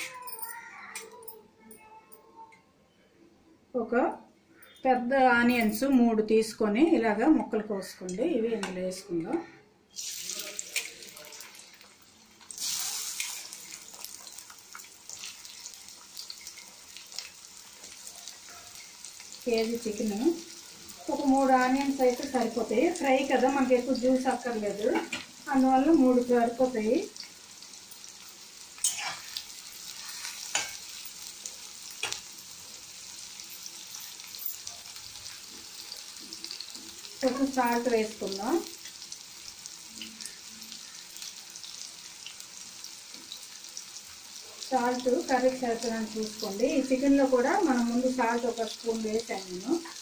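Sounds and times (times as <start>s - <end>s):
oil popping and crackling: 9.9s - 25.3s, 27.2s - 48.2s
onions sizzling in oil: 9.9s - 50.0s.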